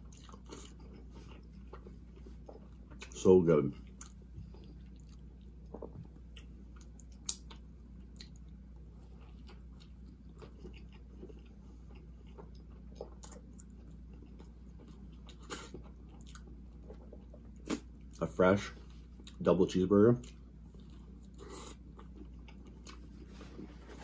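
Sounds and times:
person chewing: 0:00.0 - 0:18.2, 0:18.9 - 0:19.4, 0:20.2 - 0:24.0.

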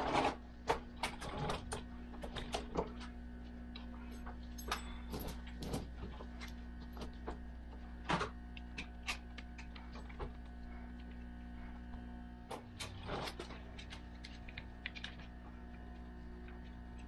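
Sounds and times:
steady low hum: 0:00.0 - 0:17.0
chain links clinking and rattling: 0:04.0 - 0:06.6.

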